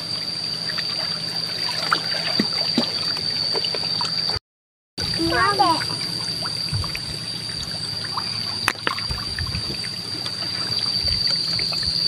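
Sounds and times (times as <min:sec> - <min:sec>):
steady high-pitched tone: 0:05.0 - 0:12.0.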